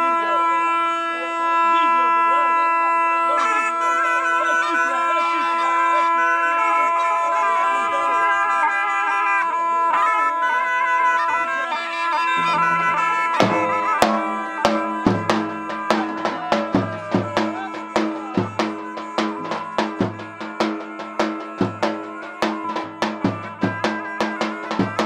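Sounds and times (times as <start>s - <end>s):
reedy shawm melody over drone: 10.9s - 25.0s
large drum beats: 12.4s - 25.0s.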